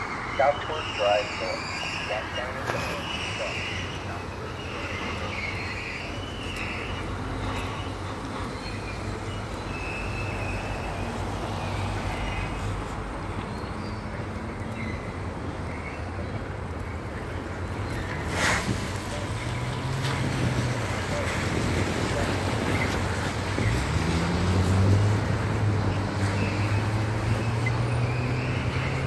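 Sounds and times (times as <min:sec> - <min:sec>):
freight train rumbling past: 0:00.0 - 0:16.6.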